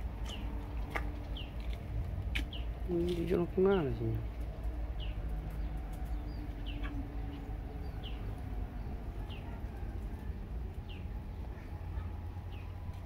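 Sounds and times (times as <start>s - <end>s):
low steady rumble: 0.0s - 13.0s
bird chirping: 2.4s - 4.2s, 5.0s - 12.9s.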